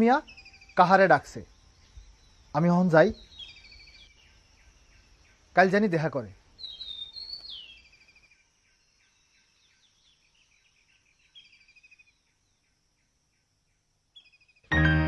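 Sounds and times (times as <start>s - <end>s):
high bird calls: 0.0s - 5.9s, 6.6s - 12.3s.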